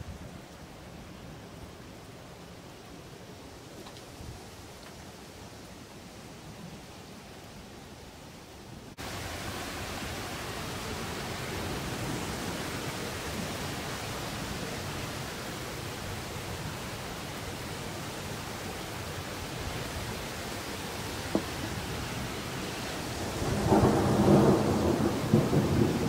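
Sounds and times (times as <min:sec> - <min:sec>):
steady rain: 0:00.0 - 0:26.0.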